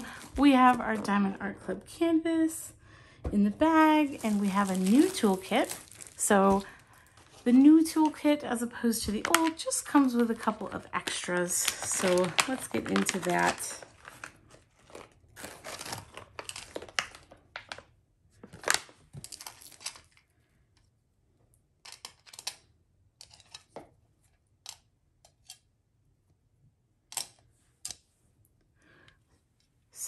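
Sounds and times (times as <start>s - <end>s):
plastic packaging crinkling: 0.0s - 1.3s, 3.6s - 20.2s
small plastic pieces clicking: 21.8s - 23.7s.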